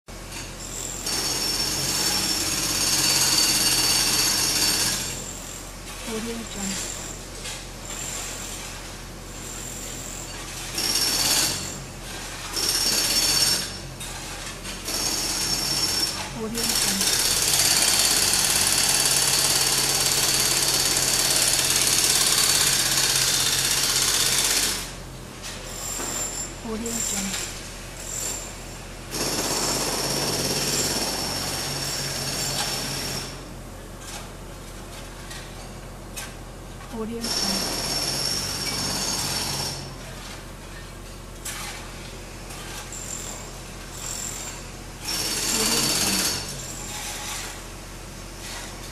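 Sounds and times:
construction site background: 0.1s - 48.9s
pneumatic hammer running: 0.3s - 8.7s, 9.4s - 33.4s, 37.0s - 48.9s
pneumatic hammer hammering: 10.3s - 24.9s, 37.2s - 39.9s, 44.0s - 47.5s.

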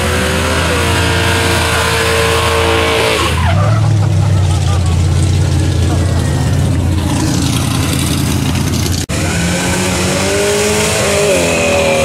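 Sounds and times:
car accelerating hard: 0.0s - 12.0s
car engine revving: 0.0s - 12.0s.

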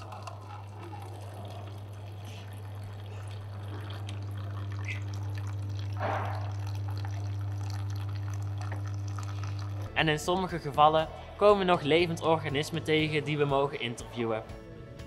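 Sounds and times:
coffee pouring into cup: 0.0s - 10.6s
coffee machine pump hum: 0.0s - 13.0s.

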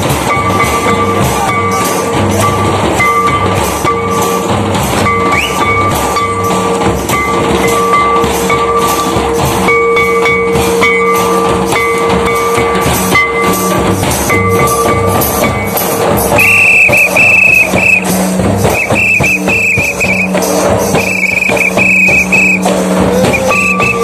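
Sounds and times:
barrel drum fast rhythm: 0.0s - 24.0s
whistle blasts: 5.3s - 5.9s, 16.4s - 22.7s, 23.3s - 24.0s
steady held tone: 16.3s - 22.7s.

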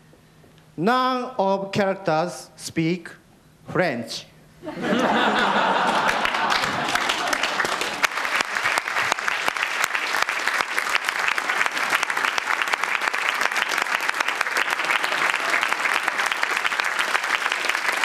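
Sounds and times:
audience applauding: 4.9s - 18.0s.

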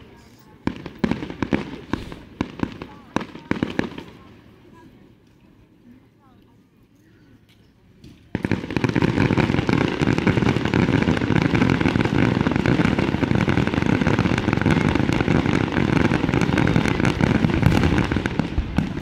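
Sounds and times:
fireworks cracking and popping: 8.1s - 19.0s.

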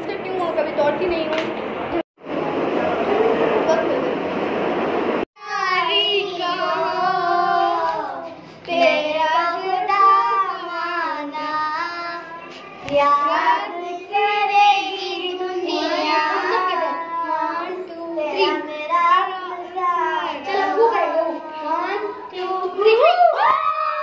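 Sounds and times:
girls singing: 5.4s - 24.0s.

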